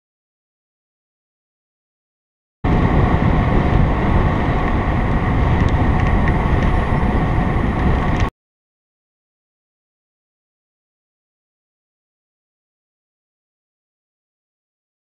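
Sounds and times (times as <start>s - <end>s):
bicycle tyre road noise: 2.7s - 8.3s
wind on microphone: 2.7s - 8.3s.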